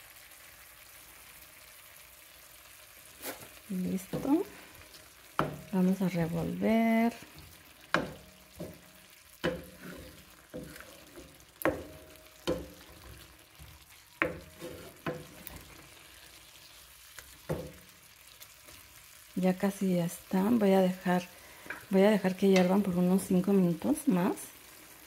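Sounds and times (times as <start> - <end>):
faint sizzle: 0.0 - 25.0
wooden spoon scraping a pan: 3.1 - 17.9, 21.5 - 23.2.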